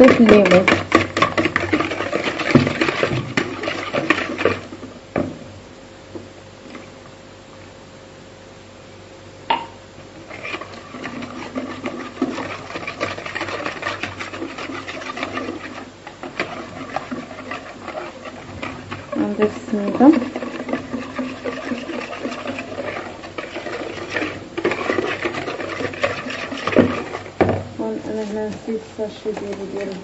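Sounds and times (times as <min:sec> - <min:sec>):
liquid sloshing: 0:00.0 - 0:04.8, 0:10.3 - 0:28.5
whisk beating batter in bowl: 0:00.0 - 0:05.3, 0:10.2 - 0:30.0.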